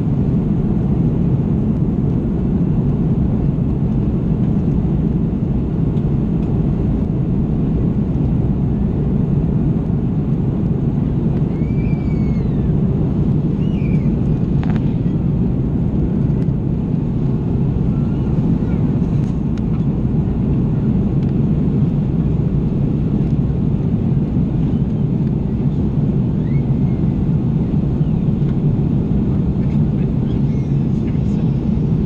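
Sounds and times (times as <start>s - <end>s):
jet engine cabin rumble: 0.0s - 32.0s.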